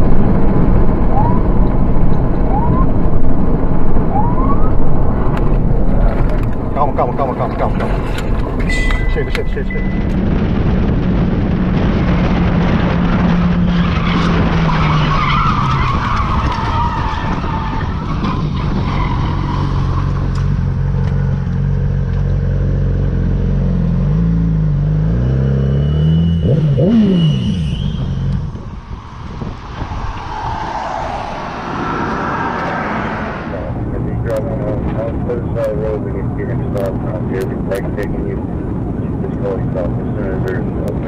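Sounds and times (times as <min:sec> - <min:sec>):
wind rush: 0:00.0 - 0:20.4, 0:28.1 - 0:35.4.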